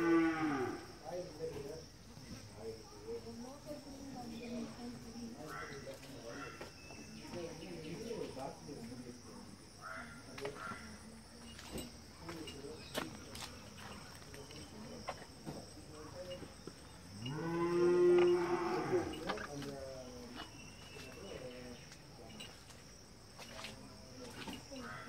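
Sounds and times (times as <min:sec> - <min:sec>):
cow mooing: 0:00.0 - 0:00.9, 0:17.2 - 0:19.2.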